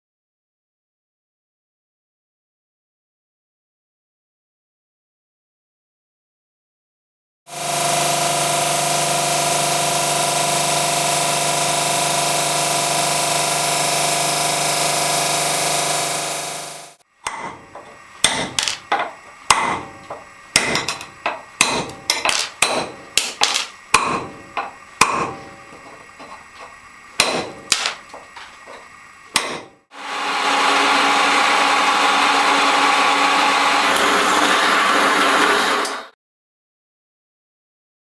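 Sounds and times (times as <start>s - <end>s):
water-fed drill whirring: 7.5s - 17.0s, 29.9s - 36.1s
hammer striking chisel on stone: 17.2s - 29.8s.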